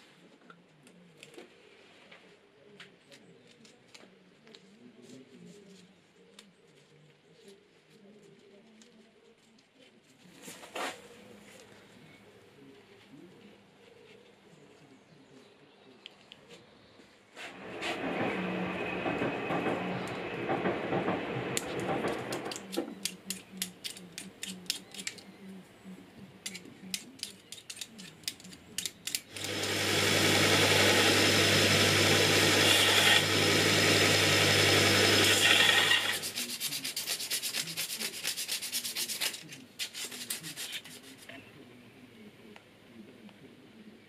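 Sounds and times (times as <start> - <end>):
belt grinder grinding metal: 29.3 - 36.4
hand rubbing metal: 34.9 - 41.4.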